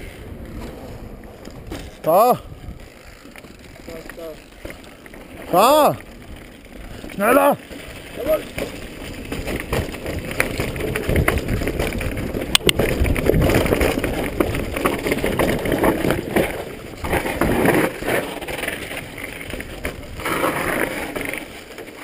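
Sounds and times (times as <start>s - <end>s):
wind on microphone: 0.0s - 3.1s, 9.3s - 16.3s
bike frame rattling: 0.0s - 22.0s
clicks and knocks from bumps: 7.1s - 22.0s.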